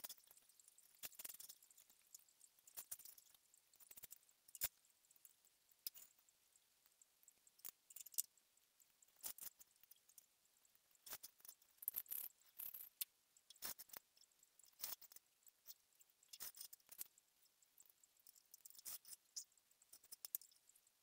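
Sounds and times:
cane strand scratching and clicking: 17.8 - 20.6.

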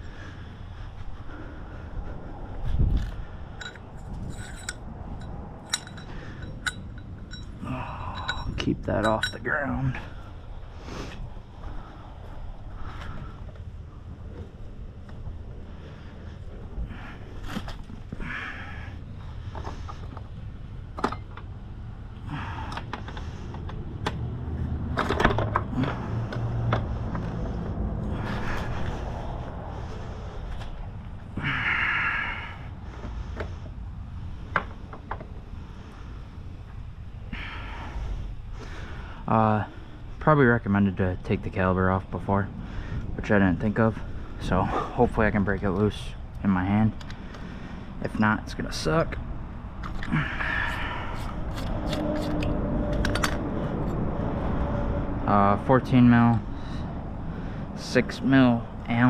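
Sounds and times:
metal tools clinking on asphalt: 2.9 - 10.2, 49.8 - 54.0.

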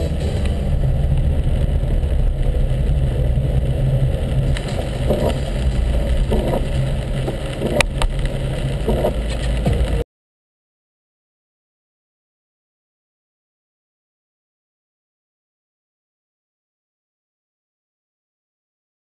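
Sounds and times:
car engine and tyres on wet road: 0.0 - 10.0.

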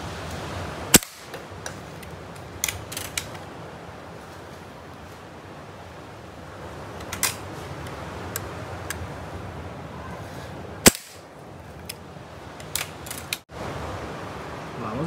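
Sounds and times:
air rifle shot crack: 0.9 - 1.3, 10.8 - 11.2.

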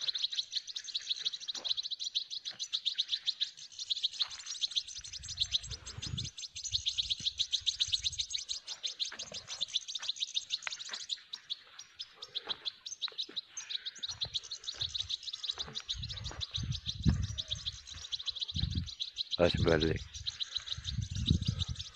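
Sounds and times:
birds twittering chirps: 0.0 - 21.9.

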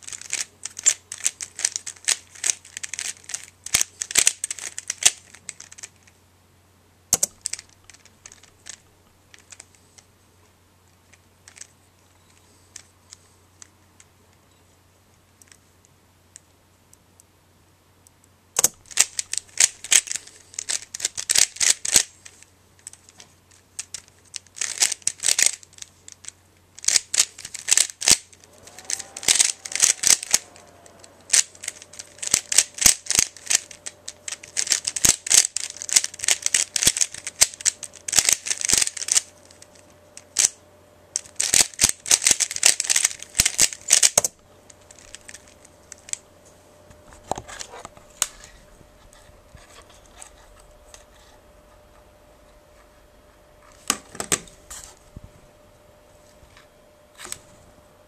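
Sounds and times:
puzzle cube clicking: 7.2 - 9.7, 23.8 - 39.6, 41.2 - 46.2.

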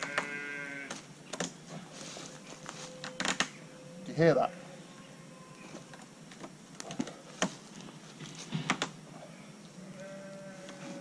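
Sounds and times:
rope clicking and creaking: 3.0 - 3.5.

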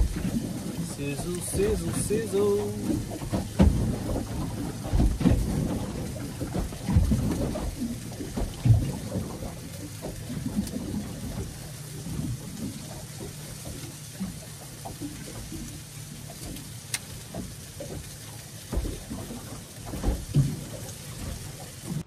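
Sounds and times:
wind buffeting microphone: 0.0 - 16.6
low rumbling: 0.0 - 22.0.

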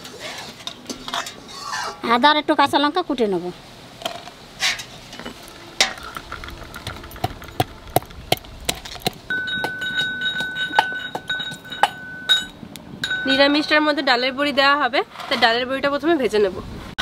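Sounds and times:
metal pestle pounding in mortar: 7.2 - 13.7
high ringing tone: 9.3 - 14.6.

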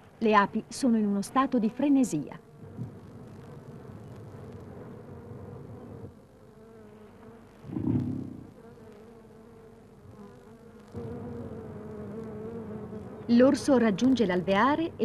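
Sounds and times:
honeybees buzzing: 0.1 - 15.0
brief low sound: 7.7 - 8.5.

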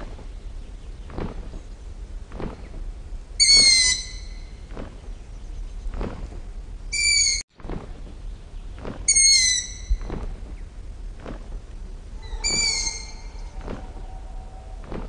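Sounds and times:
owl screeching: 3.4 - 4.4, 7.0 - 7.4, 9.1 - 10.0, 12.2 - 14.9.

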